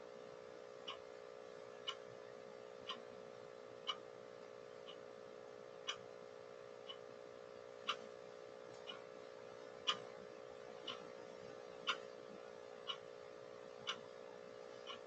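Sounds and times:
electrical hum: 0:00.0 - 0:15.0
clock ticking: 0:00.8 - 0:01.0, 0:01.8 - 0:02.0, 0:02.8 - 0:03.1, 0:03.8 - 0:04.1, 0:05.8 - 0:06.1, 0:06.8 - 0:07.1, 0:07.8 - 0:08.0, 0:08.7 - 0:09.1, 0:09.8 - 0:10.1, 0:10.8 - 0:11.2, 0:11.8 - 0:12.1, 0:12.8 - 0:13.2, 0:13.8 - 0:14.2.

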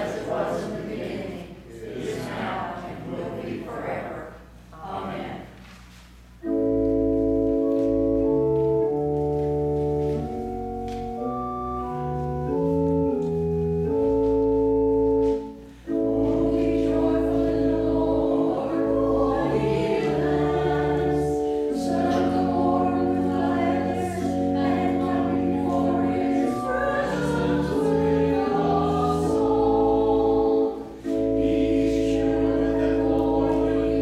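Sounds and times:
congregation singing: 0:00.0 - 0:05.6, 0:06.4 - 0:34.0
church organ chords: 0:06.3 - 0:34.0.

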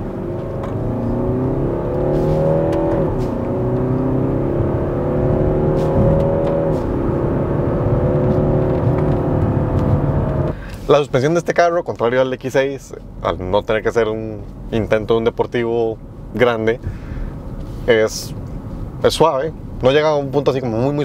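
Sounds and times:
diesel engine accelerating: 0:00.0 - 0:21.0.

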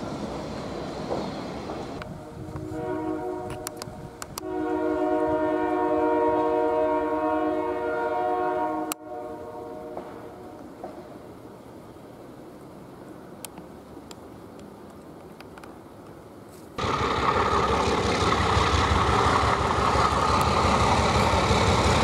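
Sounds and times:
locomotive air horn chord: 0:02.0 - 0:10.6.

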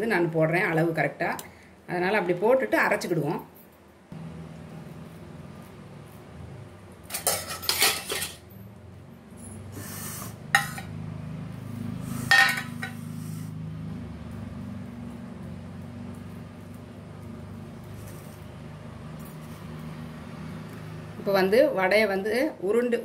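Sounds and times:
steady low hum: 0:04.1 - 0:07.0
steel dishes clattering: 0:07.1 - 0:08.5, 0:12.3 - 0:13.0.

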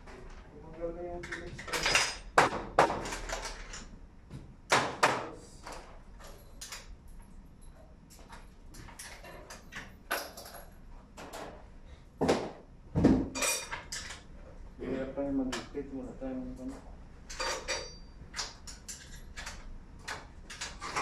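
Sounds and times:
hands clicking and rattling cabinets: 0:01.2 - 0:03.9, 0:18.3 - 0:21.0.

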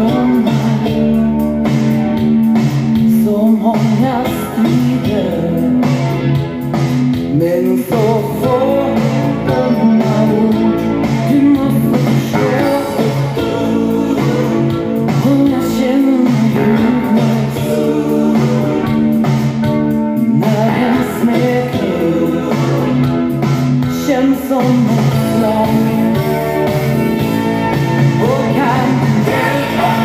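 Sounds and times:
pop-rock band playing: 0:00.0 - 0:30.0
woman singing: 0:03.1 - 0:05.7, 0:11.3 - 0:18.8, 0:24.0 - 0:26.1.

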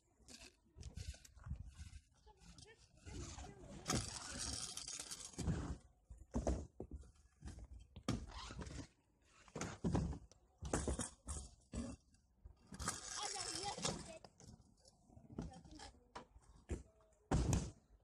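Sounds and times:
scooter wheels rolling on asphalt: 0:00.2 - 0:07.2, 0:12.6 - 0:14.7
scooter knocks and scrapes: 0:01.0 - 0:12.0, 0:12.7 - 0:14.2, 0:16.6 - 0:17.9.

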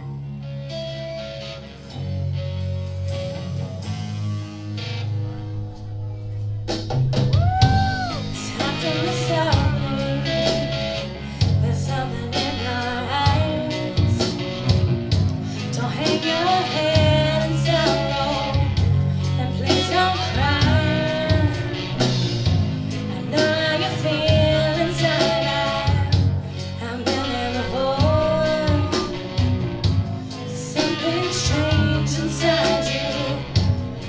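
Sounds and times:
bass guitar: 0:00.0 - 0:34.0
drums: 0:00.0 - 0:34.0
electric guitar: 0:00.0 - 0:34.0
woman singing: 0:07.9 - 0:14.6, 0:15.6 - 0:22.1, 0:23.0 - 0:29.6, 0:30.4 - 0:33.9.

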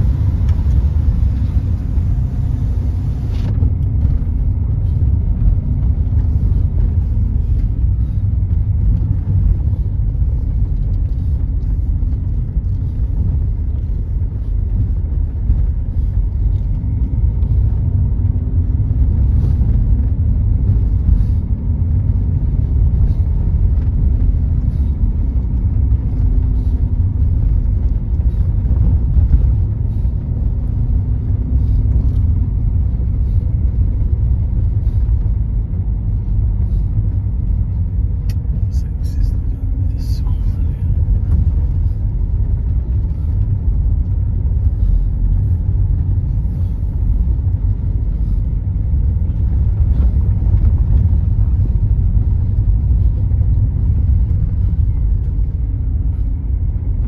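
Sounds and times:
engine and tyre rumble inside car: 0:00.0 - 0:57.0
faint engine hum: 0:00.0 - 0:57.0.

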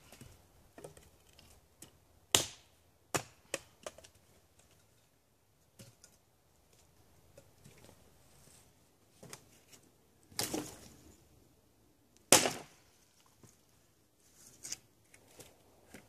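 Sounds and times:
hatchet chopping wood: 0:02.3 - 0:04.0, 0:12.3 - 0:12.7.

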